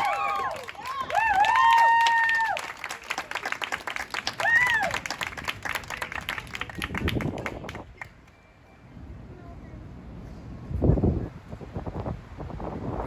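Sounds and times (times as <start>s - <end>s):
audience applauding: 0.0s - 8.4s.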